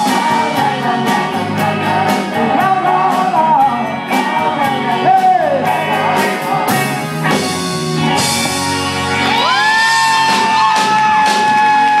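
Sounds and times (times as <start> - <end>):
men singing: 0.0 - 7.1
live blues band: 0.0 - 12.0.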